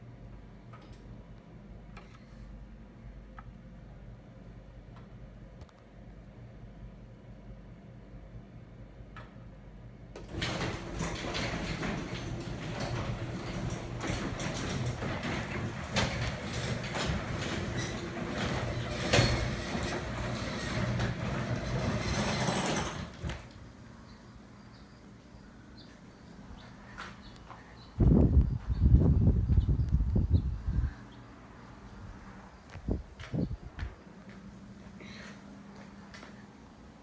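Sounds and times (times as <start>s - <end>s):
garage door opener motor hum: 10.1s - 24.8s
garage door rattling and clanking: 10.2s - 23.8s.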